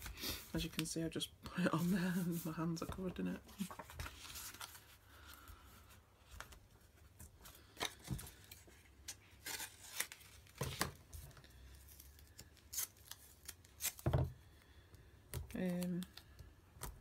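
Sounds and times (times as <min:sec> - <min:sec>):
paper rustling: 0:01.8 - 0:05.5.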